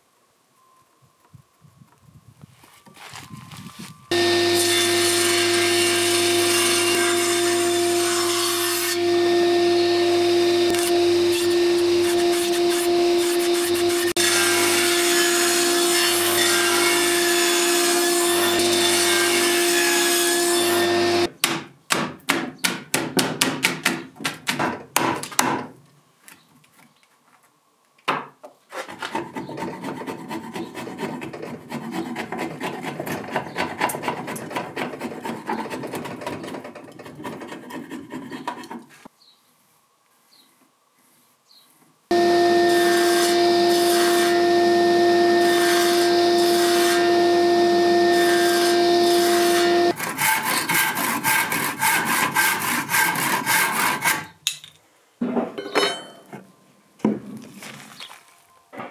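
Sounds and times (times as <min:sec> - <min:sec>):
table saw cutting wood: 0:04.1 - 0:21.3, 0:42.1 - 0:54.3
chisel scraping wood: 0:28.7 - 0:39.1.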